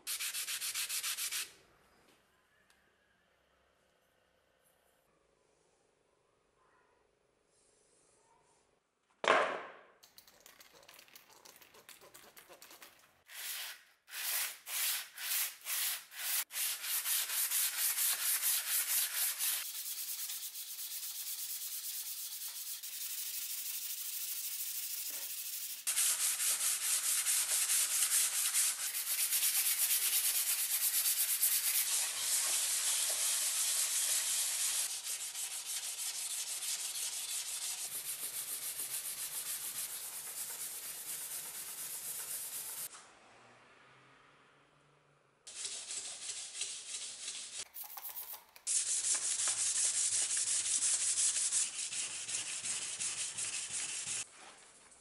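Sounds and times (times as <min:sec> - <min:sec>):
knock: 0:09.2 - 0:09.9
knife scraping on sandpaper: 0:12.3 - 0:33.2, 0:45.5 - 0:54.3.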